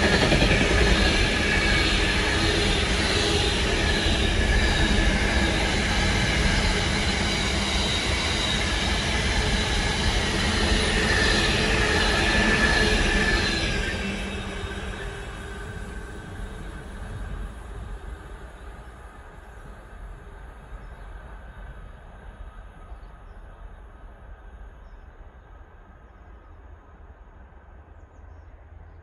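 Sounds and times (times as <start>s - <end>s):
high whining tones: 0.0s - 18.4s
freight train wheels rumbling: 0.0s - 26.3s.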